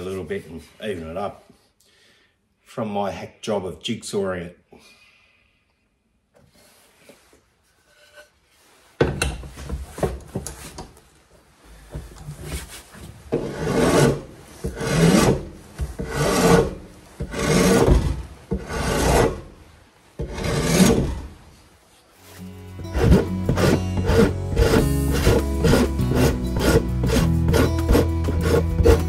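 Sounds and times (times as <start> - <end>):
hand file rasping wood: 13.3 - 19.5, 20.2 - 21.3, 22.8 - 29.0.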